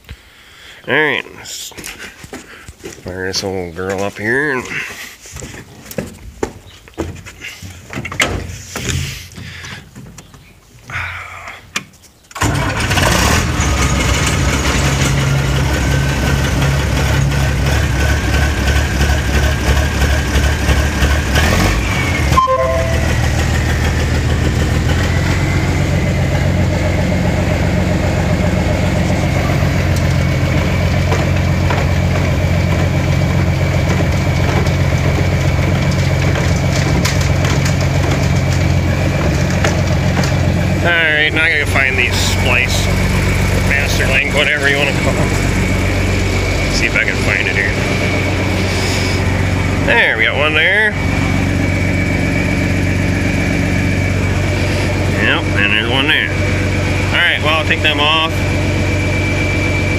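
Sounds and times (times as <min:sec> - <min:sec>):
tractor engine running: 0:12.3 - 0:59.9
short tones: 0:22.0 - 0:23.6.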